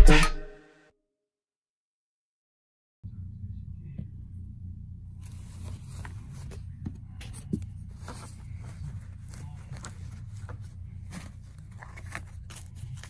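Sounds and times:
steady low hum: 0:03.1 - 0:13.0
carpet rustling and scraping: 0:05.2 - 0:13.0.

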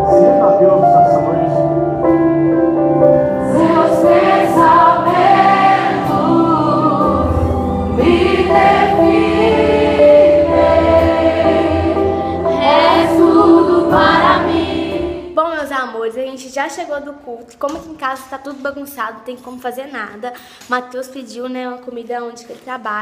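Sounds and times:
choir singing gospel music: 0:00.0 - 0:15.4
instrumental backing over loudspeakers: 0:00.0 - 0:16.3.

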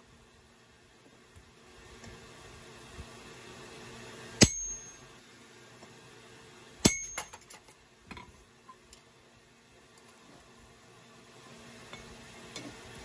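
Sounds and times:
hammer striking metal punch: 0:04.4 - 0:05.0, 0:06.8 - 0:07.4.

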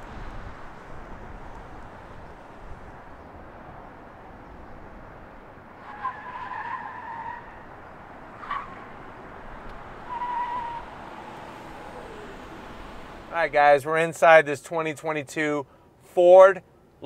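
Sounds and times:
tires squealing on asphalt: 0:05.7 - 0:13.4.

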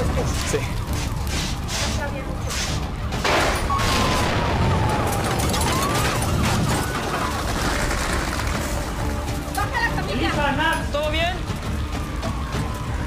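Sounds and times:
fire and debris crackling: 0:00.0 - 0:13.0
explosion rumble: 0:03.3 - 0:08.5.

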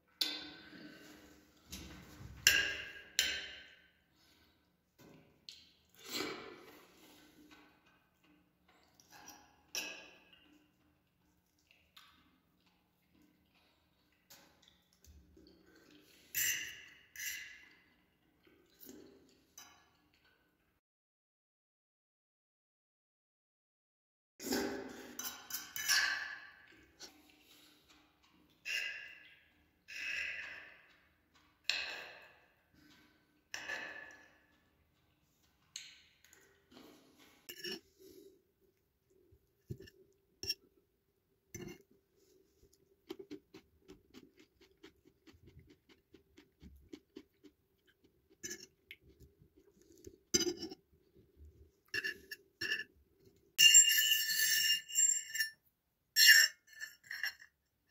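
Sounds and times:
quiet chewing: 0:10.4 - 0:16.3, 0:34.1 - 0:40.8, 0:41.6 - 0:53.5
fork scraping plate squeakily: 0:37.5 - 0:37.8.

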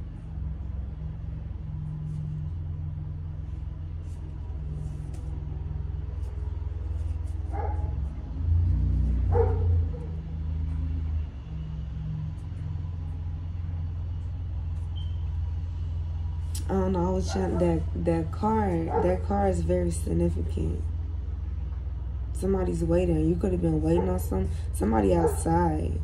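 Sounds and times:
car engine rumbling: 0:00.0 - 0:26.0
dog barking: 0:07.5 - 0:08.0, 0:09.3 - 0:10.2, 0:17.2 - 0:17.8, 0:18.9 - 0:19.2, 0:23.9 - 0:24.4, 0:25.2 - 0:25.6.

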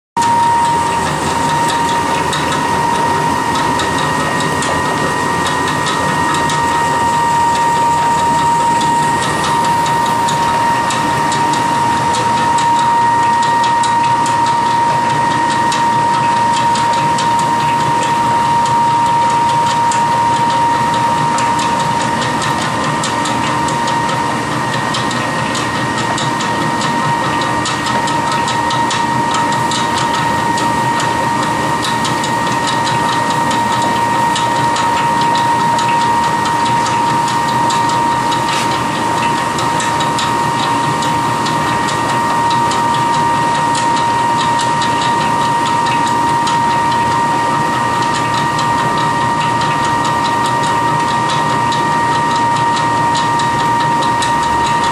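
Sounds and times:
pellet mill whining: 0:00.2 - 0:54.9.

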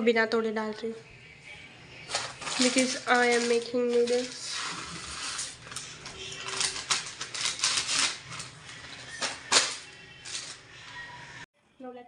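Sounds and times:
plastic packet crinkling: 0:02.1 - 0:10.6.

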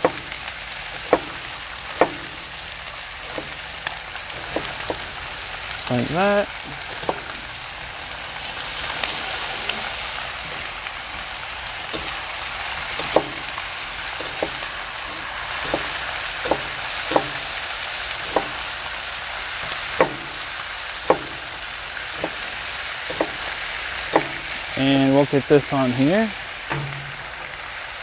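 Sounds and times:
bacon sizzling on a griddle: 0:00.0 - 0:28.0
knife chopping on cutting board: 0:01.1 - 0:01.4, 0:02.0 - 0:02.4, 0:14.2 - 0:17.5, 0:18.3 - 0:18.6, 0:20.0 - 0:20.4, 0:21.1 - 0:21.5, 0:23.1 - 0:23.4.

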